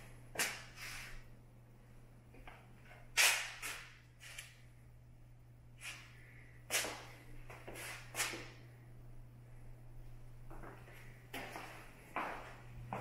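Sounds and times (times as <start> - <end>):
steady low hum: 0.0 - 13.0
faint footsteps on floor: 10.5 - 13.0.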